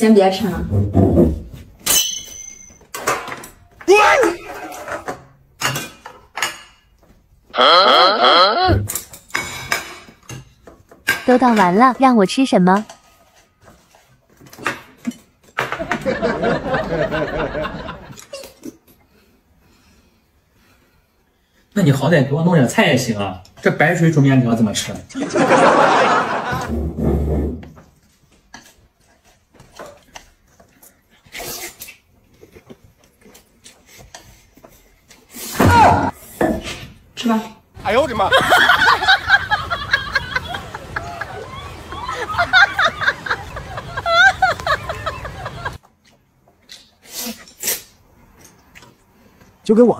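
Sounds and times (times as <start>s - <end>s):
people laughing: 15.8s - 18.5s, 25.1s - 26.7s, 37.9s - 45.8s.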